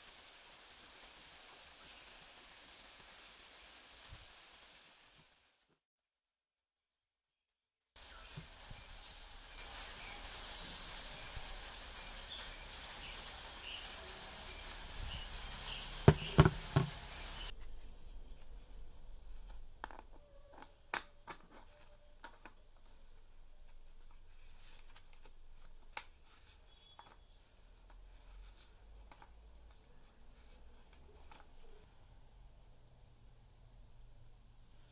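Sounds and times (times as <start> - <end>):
steady hiss: 0.0 - 5.7, 8.0 - 19.8
handling noises: 15.1 - 31.9.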